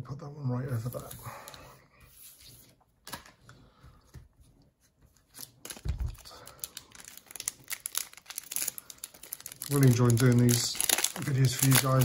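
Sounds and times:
foil wrapper crinkling and tearing: 5.3s - 12.0s.

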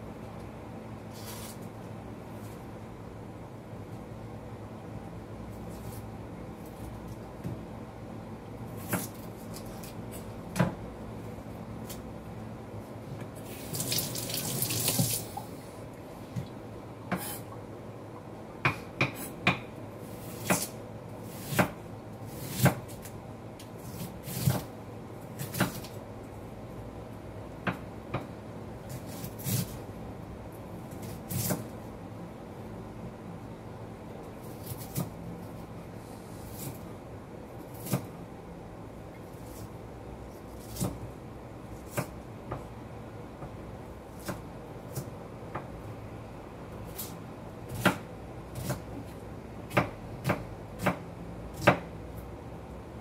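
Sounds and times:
knife chopping on wooden board: 18.6s - 19.7s, 20.4s - 21.8s, 22.4s - 23.0s, 47.7s - 48.9s, 49.7s - 51.9s.

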